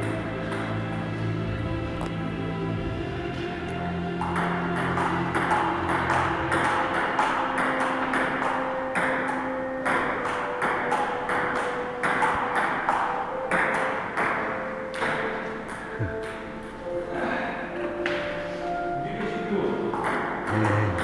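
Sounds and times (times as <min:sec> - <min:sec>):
ping-pong ball clicking off rackets: 0:04.2 - 0:16.4, 0:19.9 - 0:21.0.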